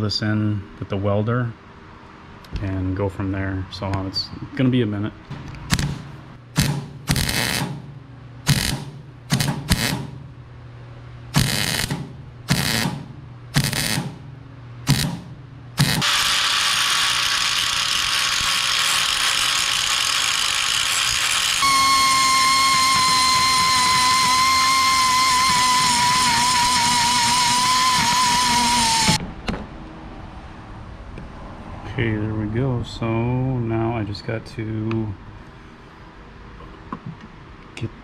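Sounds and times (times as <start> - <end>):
welding bursts: 5.7 - 10.2, 11.3 - 14.2, 14.8 - 29.2
power tool running: 6.6 - 7.9, 8.5 - 10.2, 11.3 - 14.2, 14.8 - 29.2
drill whine: 11.4 - 13.0, 13.6 - 14.0, 15.8 - 29.2.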